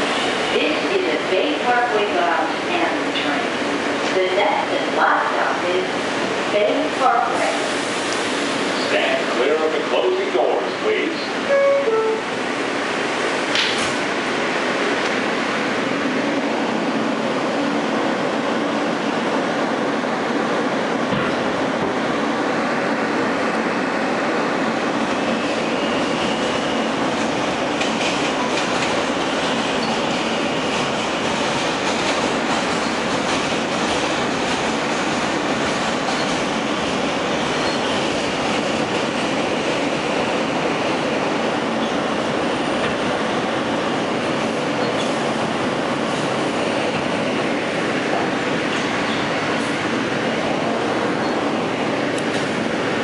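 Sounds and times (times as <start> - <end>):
train wheels clattering on rail: 13.3 - 15.3, 21.0 - 22.0, 24.9 - 53.0.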